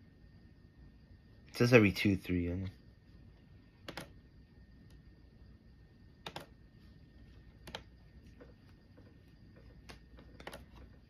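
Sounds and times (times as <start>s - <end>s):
computer keys clicking: 3.8s - 4.2s, 6.2s - 6.6s, 7.6s - 8.5s, 9.6s - 10.9s.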